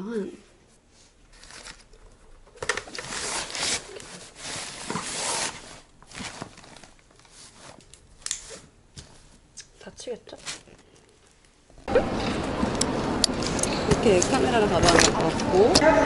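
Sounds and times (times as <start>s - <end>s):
bag rustling and scraping in suitcase: 2.9s - 7.8s.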